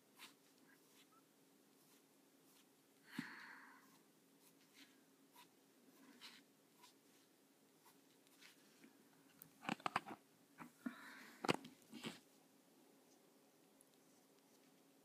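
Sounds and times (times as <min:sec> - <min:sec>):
pen nib scratching on paper: 0:00.1 - 0:01.2, 0:01.8 - 0:02.7, 0:03.8 - 0:08.6.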